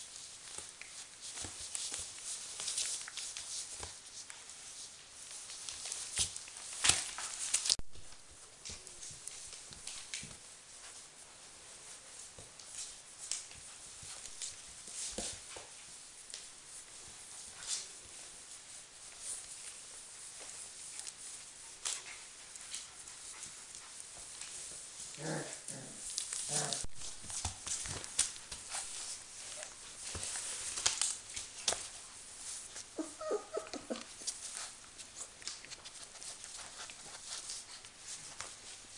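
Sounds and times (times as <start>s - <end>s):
paper rustling and crinkling: 0.0s - 25.2s, 26.0s - 33.1s, 33.8s - 38.9s
puppy vocal sounds: 25.0s - 26.9s, 32.7s - 35.6s
newspaper rustling: 26.1s - 33.0s.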